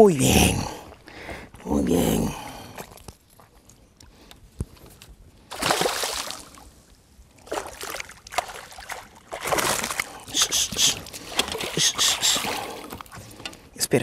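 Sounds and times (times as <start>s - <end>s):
fish splashing at surface: 5.5s - 6.6s, 7.4s - 13.2s.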